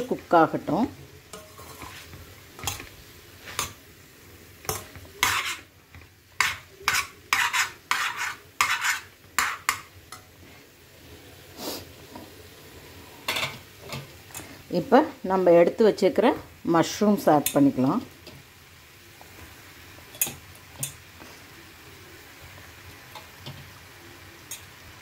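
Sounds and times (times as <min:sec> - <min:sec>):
vegetables sizzling: 0:00.0 - 0:25.0
metal spoon scraping a pan: 0:01.3 - 0:03.8, 0:04.6 - 0:05.7, 0:06.4 - 0:10.3, 0:20.0 - 0:21.0, 0:24.4 - 0:24.8.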